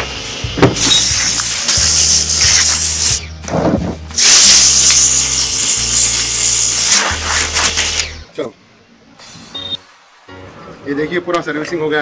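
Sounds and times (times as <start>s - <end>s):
pressure washer spray hissing: 0.0s - 3.2s, 4.1s - 8.2s.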